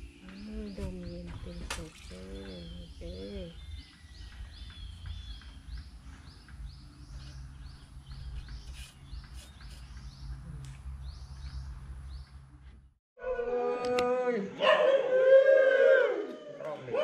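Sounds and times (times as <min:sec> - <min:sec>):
bird chirping: 0:00.0 - 0:12.6.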